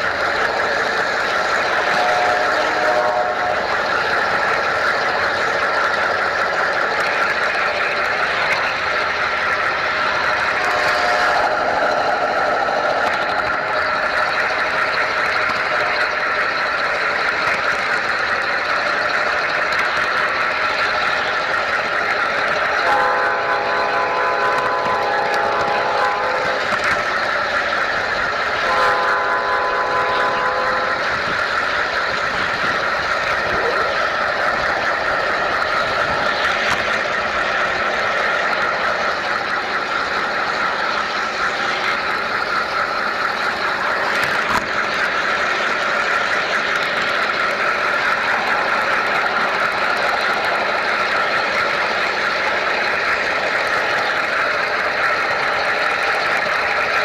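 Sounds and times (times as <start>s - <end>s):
model train whirring on track: 0.0s - 57.0s
short train horn: 2.0s - 3.6s, 10.7s - 11.6s, 22.8s - 26.6s, 28.7s - 31.0s.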